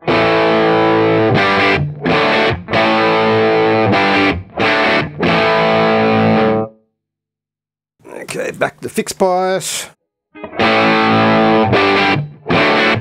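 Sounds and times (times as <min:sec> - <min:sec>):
distorted electric guitar chords: 0:00.0 - 0:06.7, 0:10.4 - 0:13.0.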